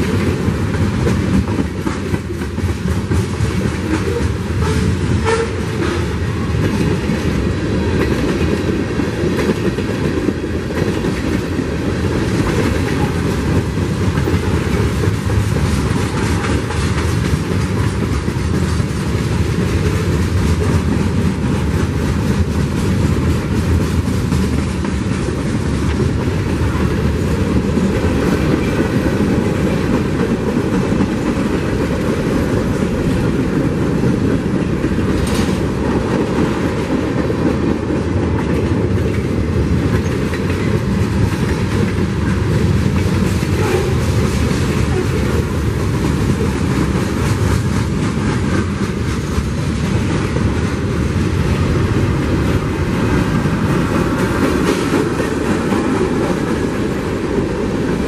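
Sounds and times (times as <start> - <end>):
freight train wheel rumble: 0.0 - 58.0
wheels clacking over rail joints: 0.0 - 58.0.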